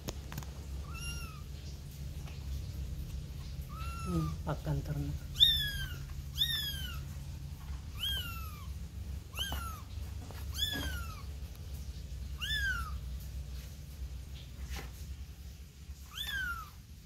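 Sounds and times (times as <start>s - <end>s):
kitten meowing: 0.8s - 1.5s, 3.6s - 4.4s, 5.2s - 7.1s, 7.9s - 11.3s, 12.4s - 13.0s, 16.0s - 16.8s.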